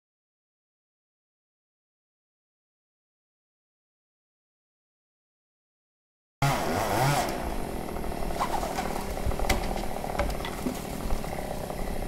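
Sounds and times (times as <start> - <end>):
chainsaw running: 6.4 - 12.0.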